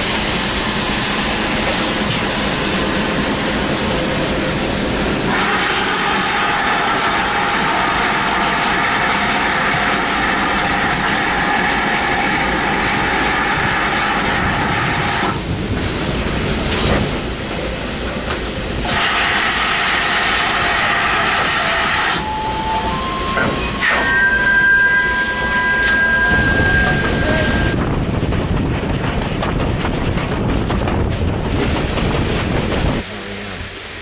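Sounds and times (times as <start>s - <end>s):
loud steam hiss: 0.0s - 27.8s, 31.5s - 34.0s
locomotive low rumble: 20.5s - 34.0s.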